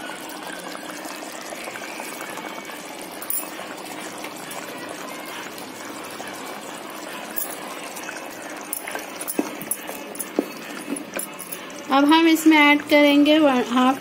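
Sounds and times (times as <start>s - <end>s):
minced meat gravy bubbling: 0.0s - 14.0s.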